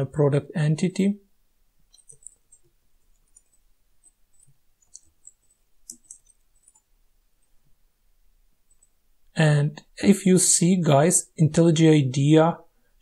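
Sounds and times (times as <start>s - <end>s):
faint keyboard keystrokes: 1.9s - 6.9s.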